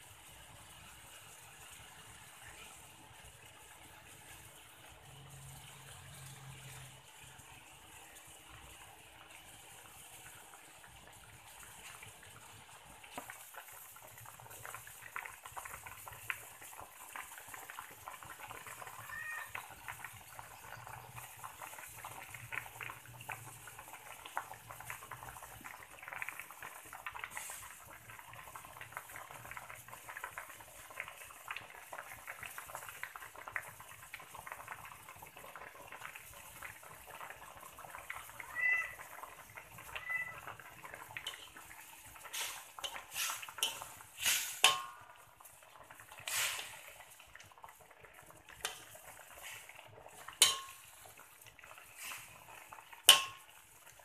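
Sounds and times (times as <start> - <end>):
bubbles popping in pan: 0.0 - 54.0
cat meowing: 19.0 - 19.6, 38.4 - 39.1, 39.7 - 40.6.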